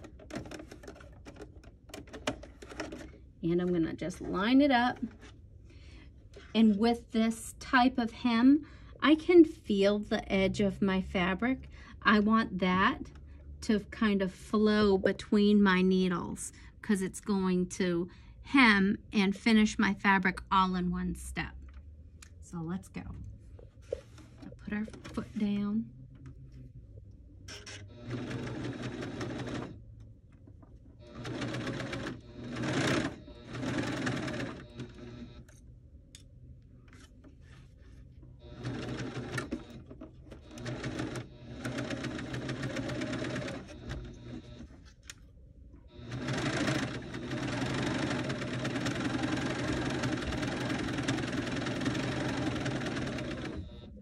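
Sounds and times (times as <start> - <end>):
serger sewing machine running: 27.9 - 29.8, 31.0 - 35.4, 38.4 - 39.8, 40.4 - 44.7, 45.9 - 53.9.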